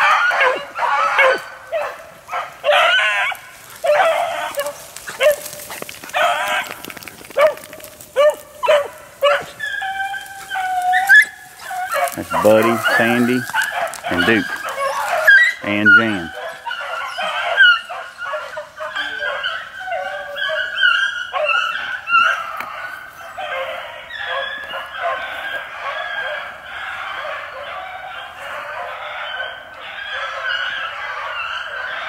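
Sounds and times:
hounds baying: 0.0s - 32.0s.

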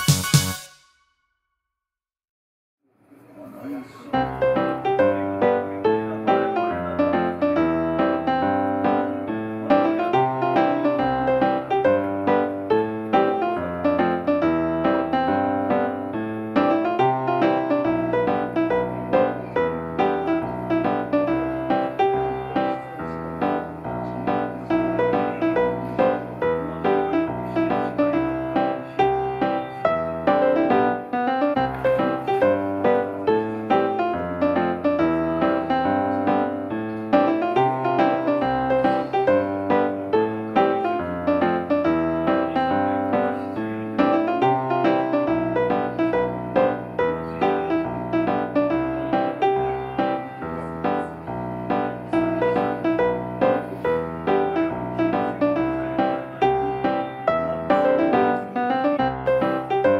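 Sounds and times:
piano music: 0.0s - 1.2s, 3.7s - 59.9s.

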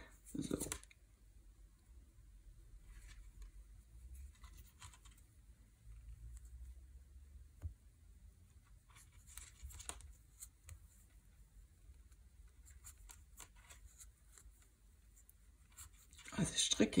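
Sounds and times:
knitting needle clicks and scrapes: 2.9s - 5.3s, 8.8s - 11.2s, 11.9s - 16.3s.

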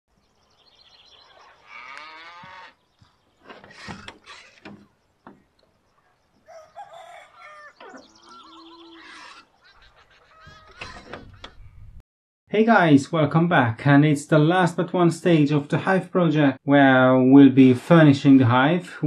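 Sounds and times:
chickens clucking and crowing: 5.8s - 11.8s.

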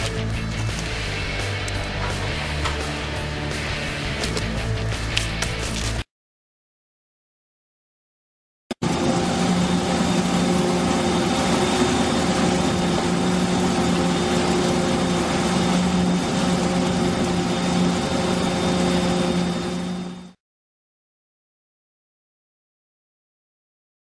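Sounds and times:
machinery engine hum: 0.0s - 6.0s, 8.8s - 20.4s.

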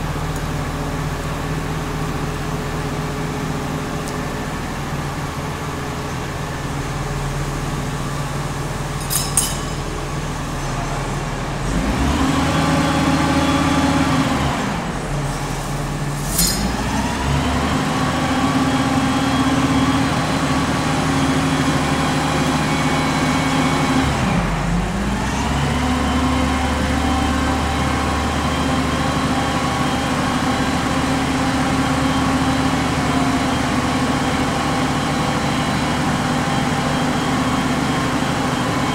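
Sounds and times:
crane diesel engine revving: 9.9s - 38.9s.

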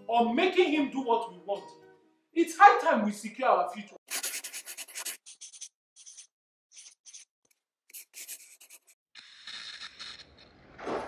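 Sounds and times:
pen scratching on paper: 4.1s - 7.3s, 7.9s - 10.2s.

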